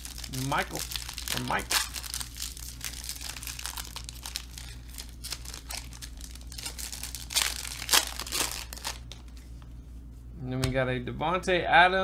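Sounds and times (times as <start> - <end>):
foil wrappers crinkling and tearing: 0.0 - 9.4.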